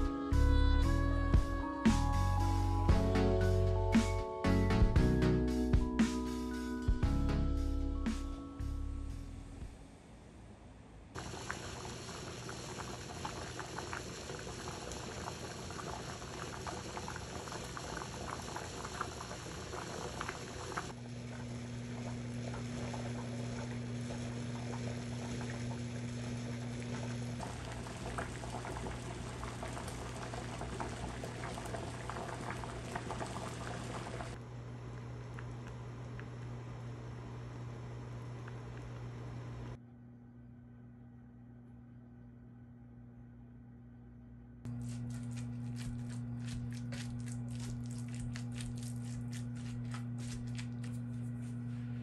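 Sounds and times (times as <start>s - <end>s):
low steady hum: 6.7s - 52.0s
liquid bubbling and crackling: 11.2s - 36.5s, 44.7s - 51.6s.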